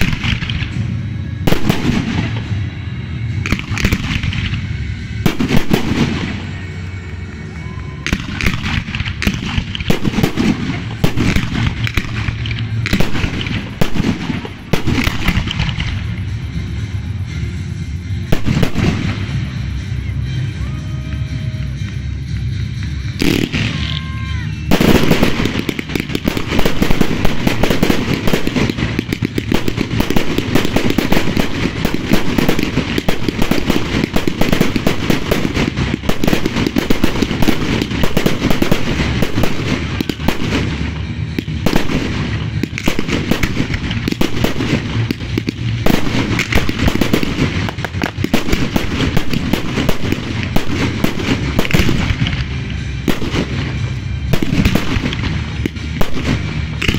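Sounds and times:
fireworks bursting and crackling: 0:00.0 - 0:56.9.

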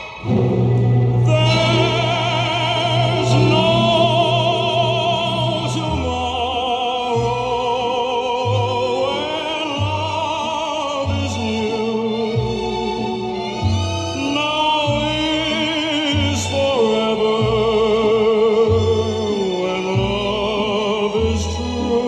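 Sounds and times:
operatic singing with vibrato: 0:00.0 - 0:22.0
orchestral music from record player: 0:00.0 - 0:22.0
bass line: 0:00.2 - 0:11.7.

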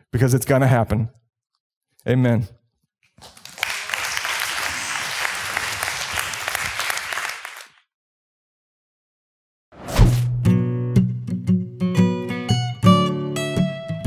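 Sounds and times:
audience applauding: 0:03.2 - 0:07.8.

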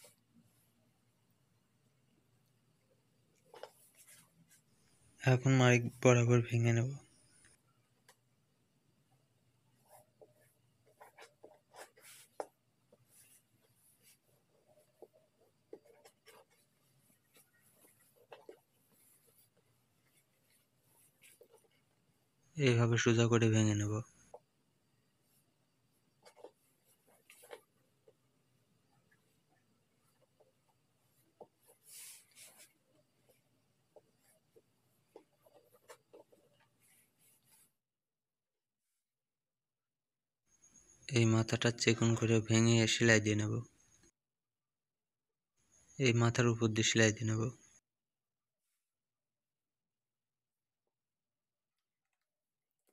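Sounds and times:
fabric rustling and scratching: 0:03.4 - 0:05.0, 0:09.8 - 0:22.2, 0:25.2 - 0:28.3, 0:28.9 - 0:37.8.

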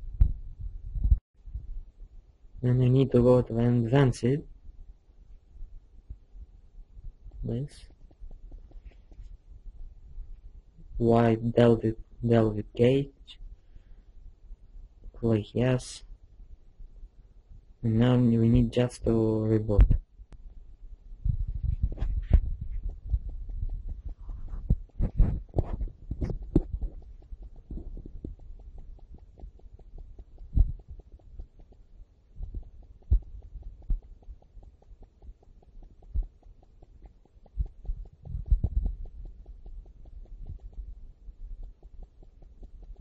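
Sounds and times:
low hum: 0:00.0 - 0:43.0
handling thumps and knocks: 0:21.2 - 0:31.8.

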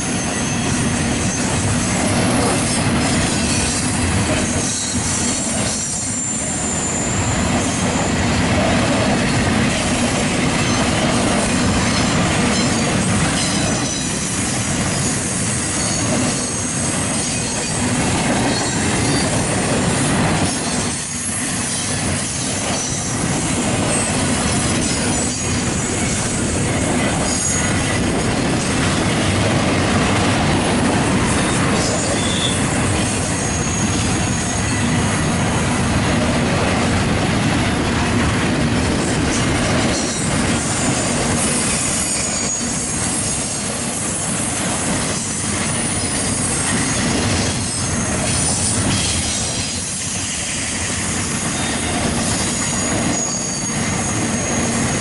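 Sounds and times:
train wheels rolling on rails: 0:00.0 - 0:55.0.

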